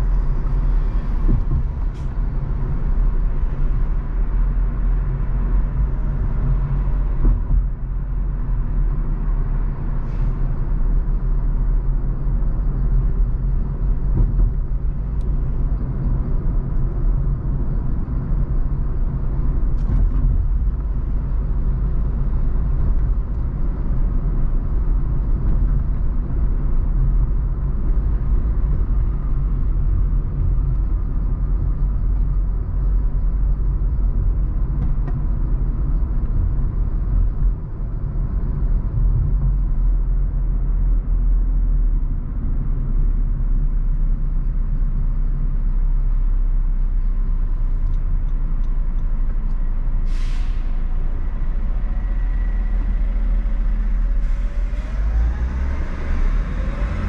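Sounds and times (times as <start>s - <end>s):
car driving in traffic: 0.0s - 57.0s
short hiss: 50.1s - 50.9s
faint rising whine: 50.6s - 57.0s.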